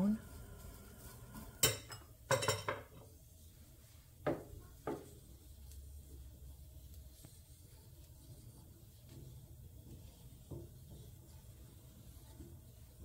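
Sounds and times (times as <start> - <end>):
utensils clinking on cookware: 1.0 - 3.1.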